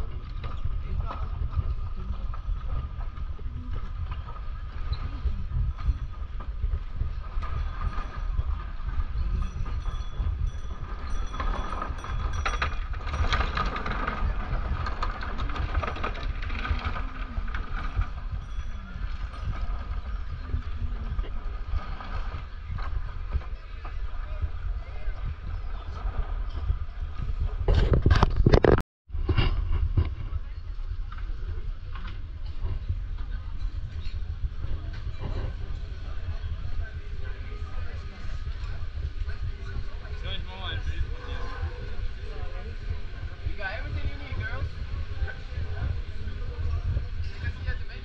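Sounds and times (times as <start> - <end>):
wind on microphone: 0.0 - 48.0
faint voices of passers-by: 30.2 - 48.0.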